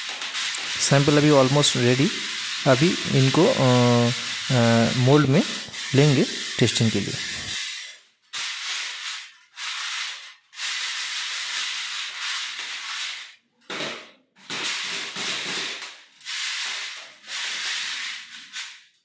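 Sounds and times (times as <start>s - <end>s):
stone aggregate rattling in a sieve: 0.0s - 13.3s.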